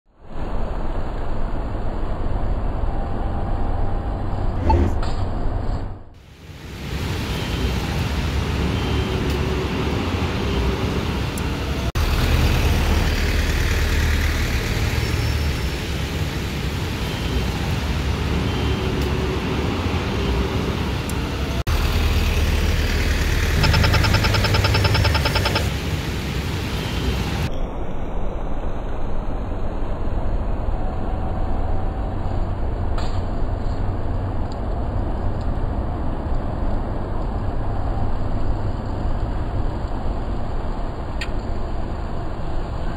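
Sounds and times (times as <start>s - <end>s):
traffic rumble: 0.2s - 42.9s
rapid ticking: 23.0s - 25.7s.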